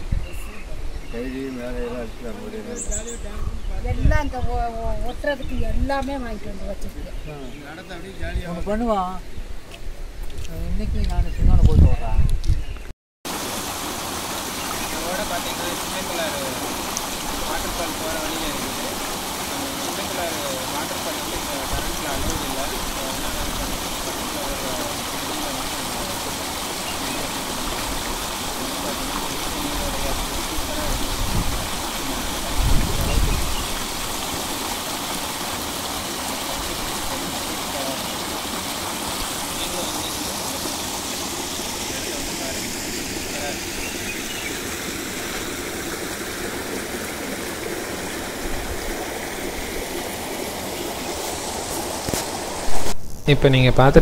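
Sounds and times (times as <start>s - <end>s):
stream rushing over rocks: 13.3s - 53.0s.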